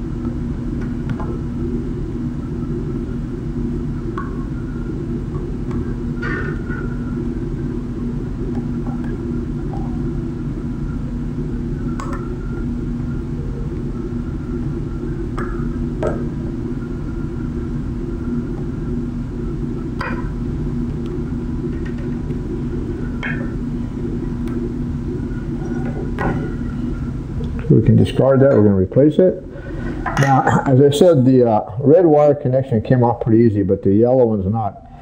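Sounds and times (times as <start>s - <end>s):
steady low hum: 0.0s - 35.0s.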